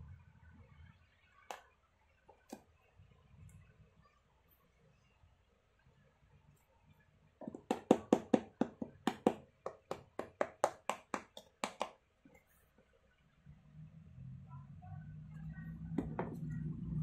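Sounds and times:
fingers tapping boot sole: 0:07.4 - 0:12.0.

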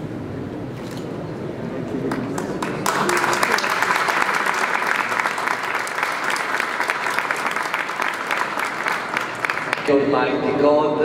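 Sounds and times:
audience applauding: 0:02.1 - 0:10.2.

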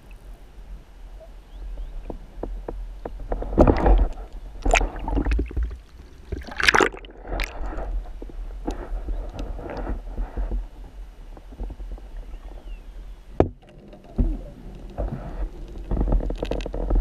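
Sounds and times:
steady low rumble: 0:00.0 - 0:17.0
water sloshing and gurgling: 0:01.8 - 0:17.0
water splashing rushes: 0:03.6 - 0:08.0.

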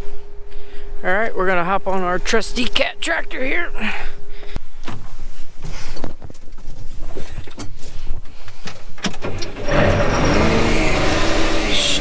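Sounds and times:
knocks and clicks in tractor cab: 0:08.6 - 0:10.0
diesel engine starting and running: 0:09.0 - 0:12.0.

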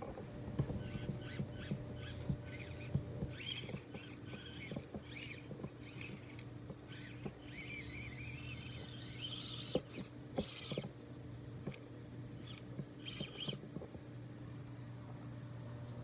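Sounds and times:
steady low hum: 0:00.0 - 0:16.0
toy car tyres knocking on wood: 0:00.6 - 0:10.9.

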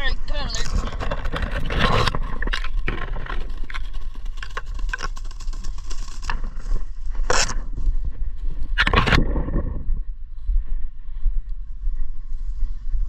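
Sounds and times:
low microphone rumble: 0:00.0 - 0:13.0
twigs crackling and snapping: 0:00.6 - 0:07.9.

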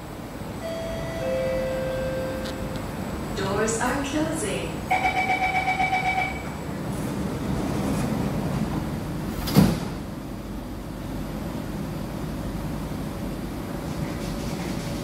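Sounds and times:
train hum: 0:00.0 - 0:15.0
door-closing chime: 0:00.6 - 0:02.8
train doors sliding shut: 0:06.4 - 0:10.3
doors closing thump: 0:09.4 - 0:10.0.

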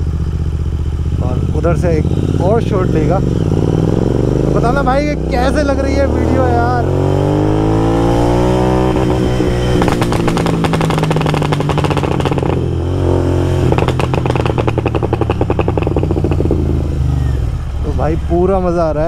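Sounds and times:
motorcycle engine revving: 0:00.0 - 0:19.0
exhaust popping and crackling: 0:08.8 - 0:19.0.

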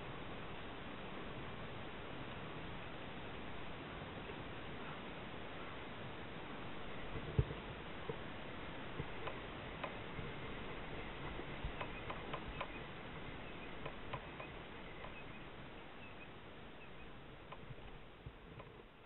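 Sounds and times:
steady outdoor hiss: 0:00.0 - 0:19.0
water lapping around a kayak: 0:00.0 - 0:19.0
light ticks and clicks: 0:09.0 - 0:19.0.

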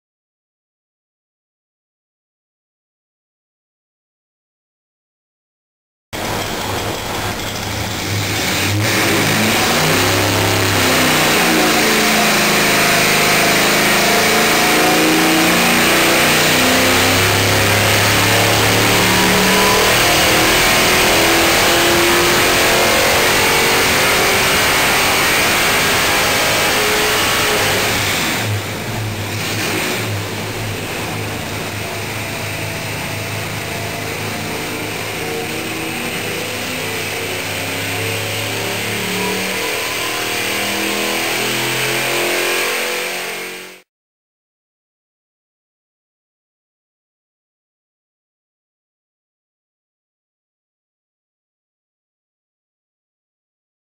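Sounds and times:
engine revving under load: 0:06.2 - 0:43.9.

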